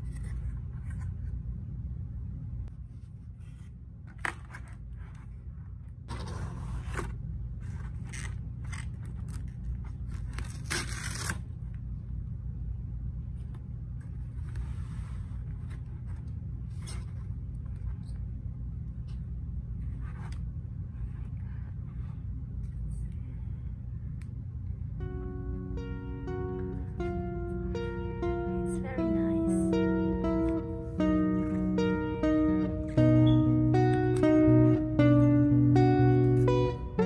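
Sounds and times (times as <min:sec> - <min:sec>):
steady low hum: 0:00.0 - 0:37.0
cardboard scraping and rustling: 0:06.1 - 0:08.4.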